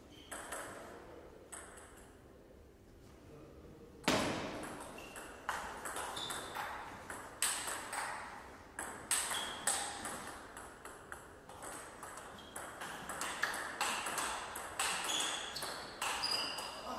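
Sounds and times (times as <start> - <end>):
table tennis ball hits: 0.3 - 0.9, 4.0 - 16.9.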